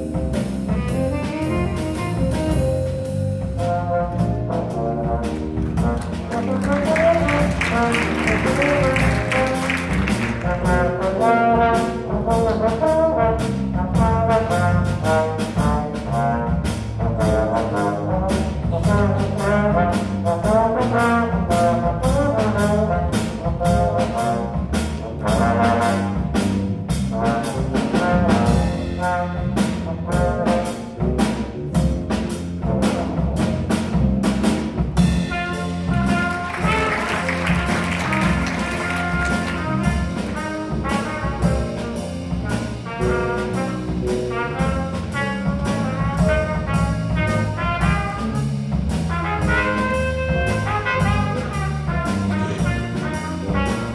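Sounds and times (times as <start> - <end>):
electric bass guitar: 0.0 - 11.2
drum kit beat: 0.0 - 53.9
grand piano: 0.0 - 53.9
horn melody: 0.0 - 53.9.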